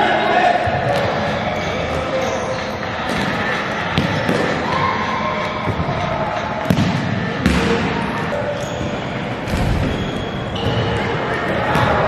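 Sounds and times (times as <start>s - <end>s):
ball kicked and bouncing indoors: 6.6s - 8.0s, 9.3s - 12.0s.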